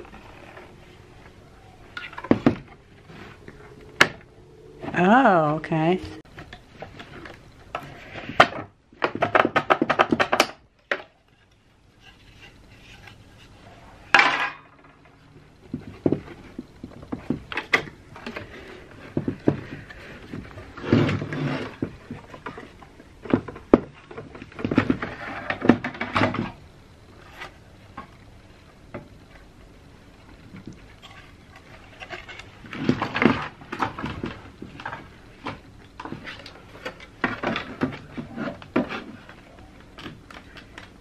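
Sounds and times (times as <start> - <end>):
plastic scraping and rubbing: 0.0 - 5.0, 6.2 - 13.7, 14.8 - 28.2, 30.3 - 41.0
plastic parts clicking and knocking: 6.4 - 11.6.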